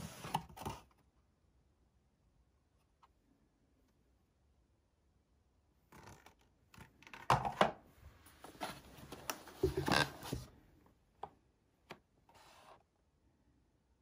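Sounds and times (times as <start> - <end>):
cardboard rustling and sliding: 0.0 - 0.9, 8.2 - 10.6.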